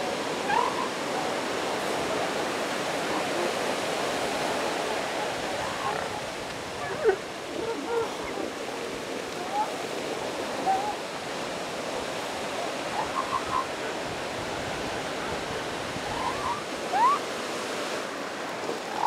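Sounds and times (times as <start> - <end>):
surf: 0.0 - 19.0
seal pup yelping: 0.5 - 0.9, 13.0 - 13.6, 16.1 - 17.2.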